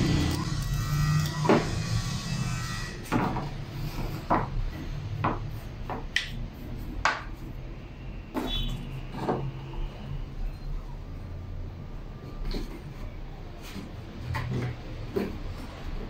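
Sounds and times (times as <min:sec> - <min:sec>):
wooden blocks knocking on workbench: 0:04.3 - 0:04.6, 0:05.2 - 0:06.4, 0:07.0 - 0:07.3.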